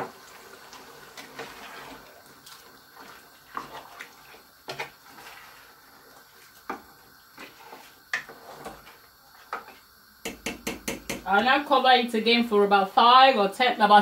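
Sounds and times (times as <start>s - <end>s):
faint steady hiss: 0.0s - 14.0s
spoon stirring stew: 1.1s - 11.4s
spoon knocking metal pot: 10.2s - 11.5s.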